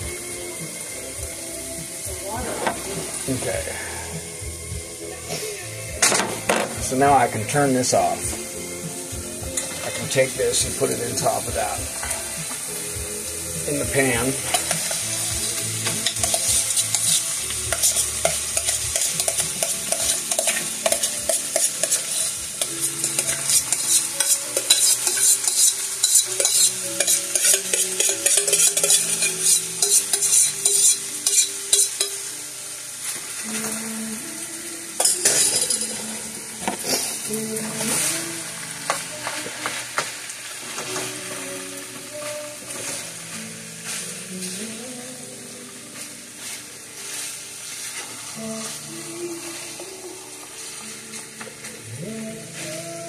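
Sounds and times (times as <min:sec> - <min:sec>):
meat sizzling in a frying pan: 0:00.0 - 0:53.0
spatula scraping and tapping: 0:15.8 - 0:32.2.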